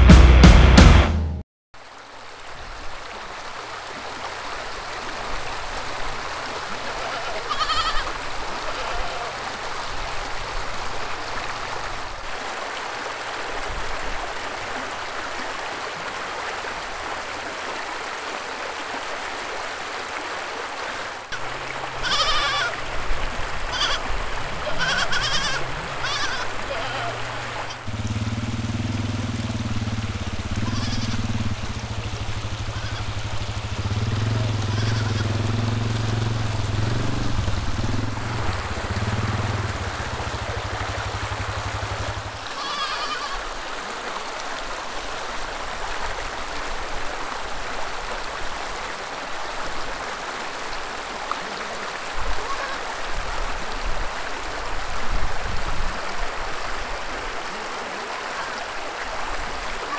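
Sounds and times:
shallow creek flowing: 1.8s - 59.9s
goat bleating: 7.0s - 9.3s, 22.0s - 22.8s, 23.7s - 27.8s, 30.6s - 31.3s, 32.6s - 33.2s, 34.7s - 35.3s, 42.4s - 43.4s, 52.4s - 52.8s
engine idling: 27.9s - 42.4s.

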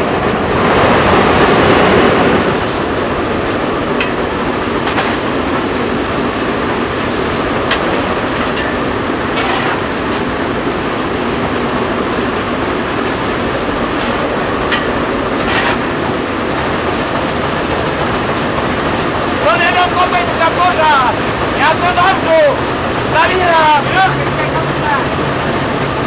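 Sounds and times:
steam locomotive rumble: 0.0s - 26.0s
steam hisses: 1.8s - 4.8s, 6.8s - 10.4s, 12.4s - 17.2s.

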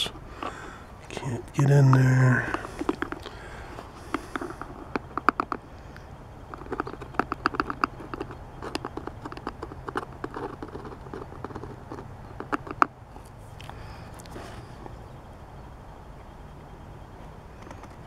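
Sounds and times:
clicking and tapping on plastic: 1.9s - 3.4s, 4.1s - 5.6s, 6.5s - 12.9s.

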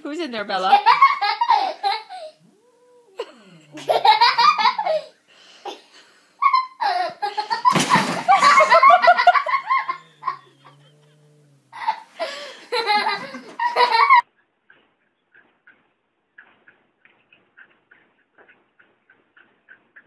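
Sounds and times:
people laughing hard: 3.6s - 5.1s, 6.4s - 11.1s, 11.8s - 14.2s.

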